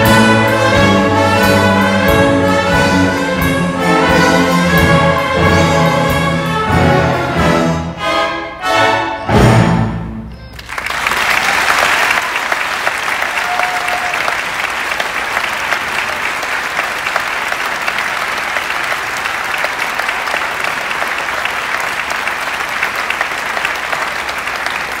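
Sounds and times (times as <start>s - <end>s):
audience applauding: 10.5s - 25.0s.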